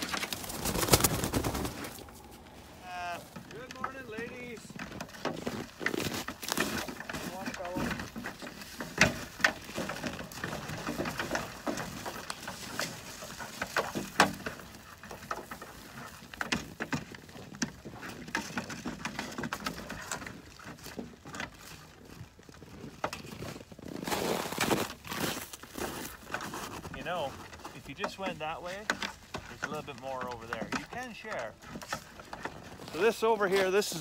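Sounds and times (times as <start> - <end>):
rustling: 0.0 - 34.0
sheep crunching feed: 0.0 - 34.0.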